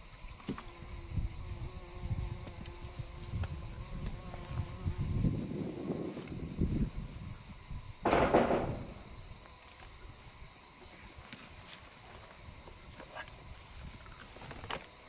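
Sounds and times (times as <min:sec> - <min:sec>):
insects chirring: 0:00.0 - 0:15.0
loud thump: 0:08.0 - 0:09.1.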